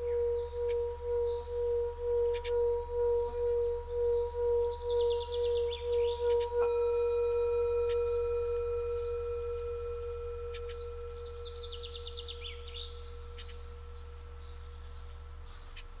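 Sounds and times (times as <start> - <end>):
bird trilling: 0.0 - 16.0
singing bowl ringing: 0.0 - 16.0.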